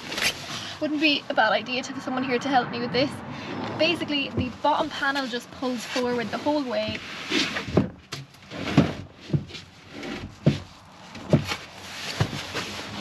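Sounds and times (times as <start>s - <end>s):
wooden bed base dragged knocking: 6.9s - 13.0s.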